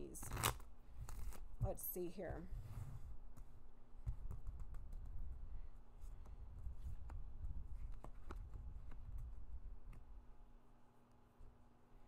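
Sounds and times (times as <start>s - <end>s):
cards clicking and sliding: 7.8s - 9.1s.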